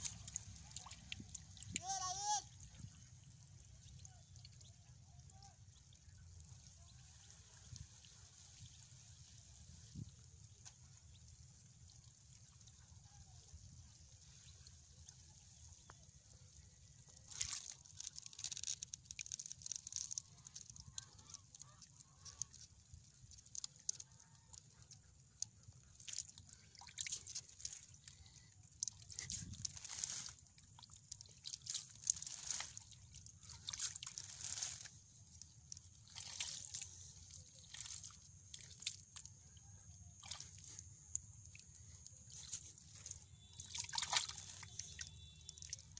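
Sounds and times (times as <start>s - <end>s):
hand splashing in muddy water: 25.4s - 45.9s.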